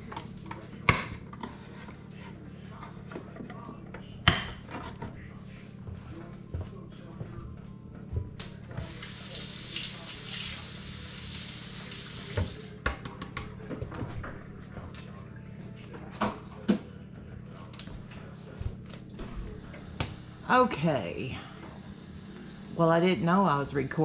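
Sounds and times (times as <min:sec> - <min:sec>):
kitchen tap running: 0:08.8 - 0:12.8.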